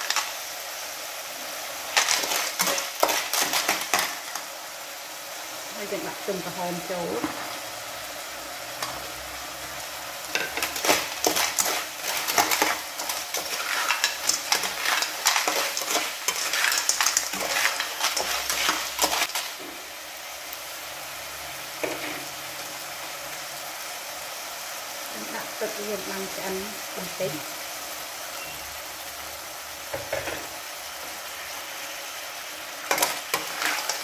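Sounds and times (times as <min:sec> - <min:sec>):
spatula clattering shells in pan: 0:00.0 - 0:00.4, 0:01.9 - 0:04.5, 0:10.2 - 0:19.6, 0:32.8 - 0:34.0
cockles sizzling in a pan: 0:00.0 - 0:34.0.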